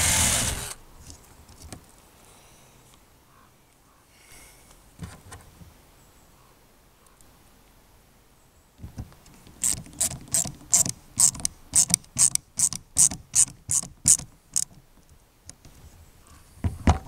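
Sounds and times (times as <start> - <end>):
ratcheting hand tool clicking: 9.6 - 14.8.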